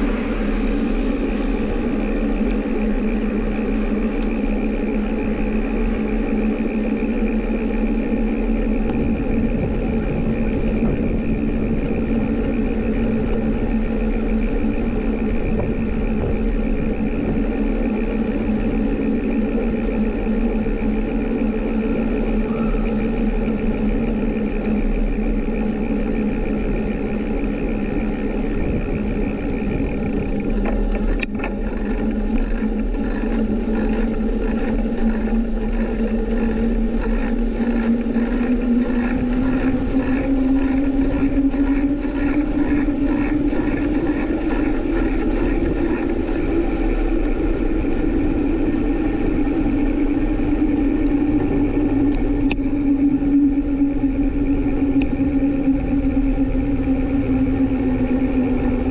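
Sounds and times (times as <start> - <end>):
ride machinery humming: 0.0 - 58.9
faint regular ticking: 23.2 - 47.4.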